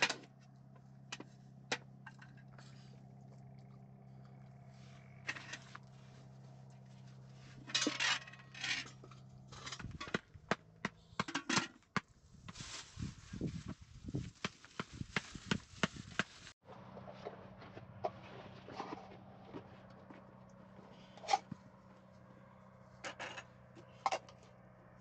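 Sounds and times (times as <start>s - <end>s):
low hum: 0.2s - 11.2s, 16.7s - 25.0s.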